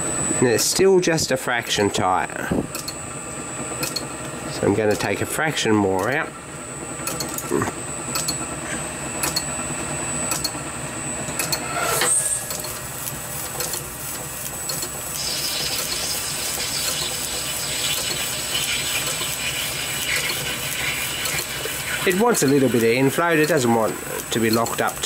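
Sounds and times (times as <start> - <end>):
metal lathe motor whine: 3.0 - 25.0
cutting tool scraping hiss: 11.5 - 12.8, 15.1 - 25.0.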